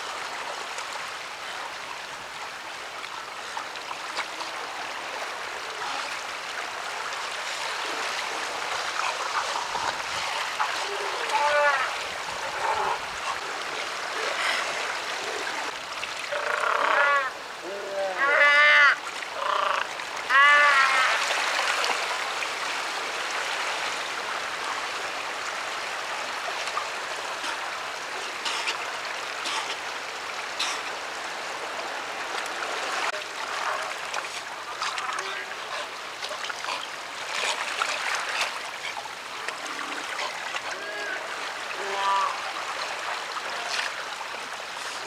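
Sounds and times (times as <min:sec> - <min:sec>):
sea lions calling: 0:09.4 - 0:15.7, 0:16.3 - 0:21.3.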